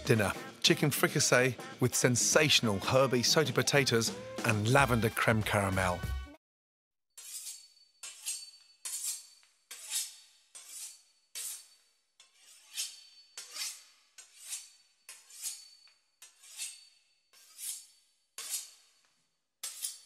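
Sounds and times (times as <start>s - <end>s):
knife sawing through pastry crust: 7.2s - 19.0s, 19.6s - 20.0s.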